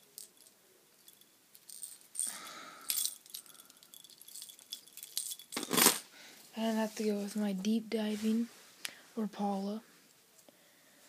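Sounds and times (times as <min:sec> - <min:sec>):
plastic fishing lures rattling: 0:00.2 - 0:05.6.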